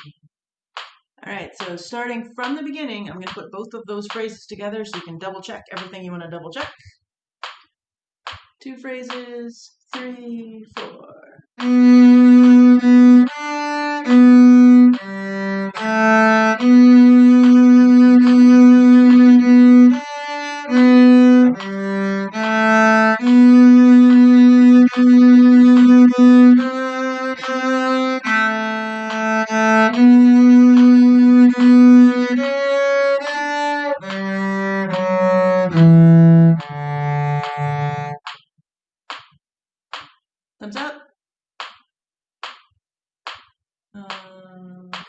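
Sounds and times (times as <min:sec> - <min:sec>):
cello playing slow hymn melody: 0:11.6 - 0:38.2.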